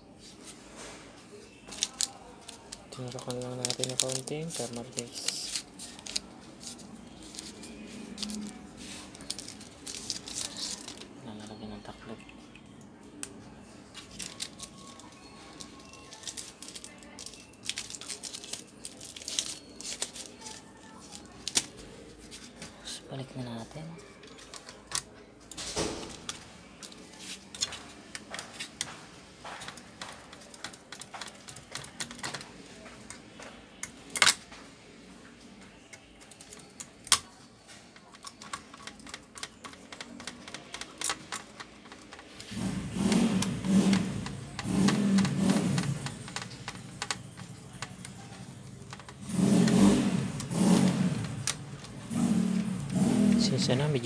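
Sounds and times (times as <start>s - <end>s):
motorcycle engine running noisily: 42.5s - 53.5s.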